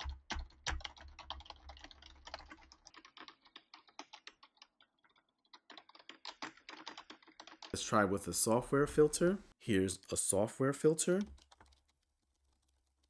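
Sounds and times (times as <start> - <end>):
rapid typing on keyboard: 0.0 - 7.8, 11.1 - 13.0.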